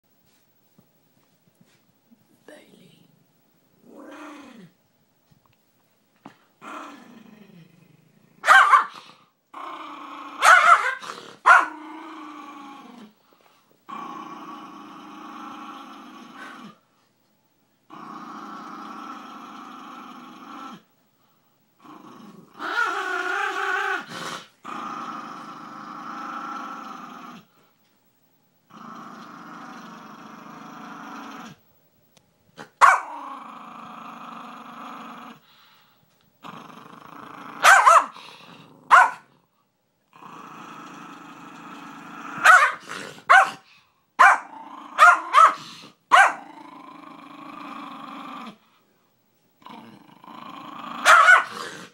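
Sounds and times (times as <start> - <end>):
small dog growling: 3.8 - 4.8, 6.3 - 13.3, 13.9 - 16.8, 17.9 - 20.9, 21.8 - 27.6, 28.7 - 31.6, 32.6 - 35.8, 36.4 - 39.4, 40.1 - 43.8, 44.4 - 48.8, 49.6 - 51.9
dog barking sharply: 8.4 - 8.9, 10.4 - 11.7, 32.8 - 33.0, 37.6 - 38.1, 38.9 - 39.2, 42.4 - 43.6, 51.1 - 51.5.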